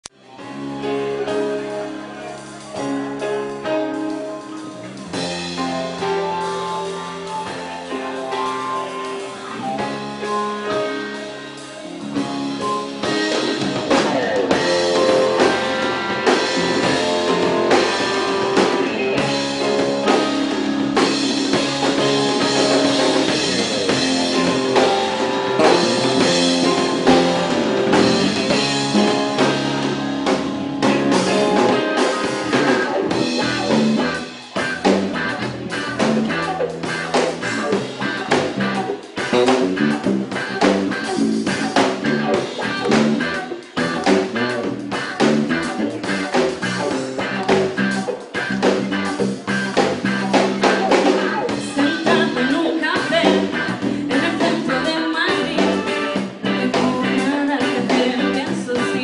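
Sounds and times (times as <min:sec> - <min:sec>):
pop-rock band playing: 0:00.1 - 0:59.0
woman singing: 0:51.7 - 0:59.0.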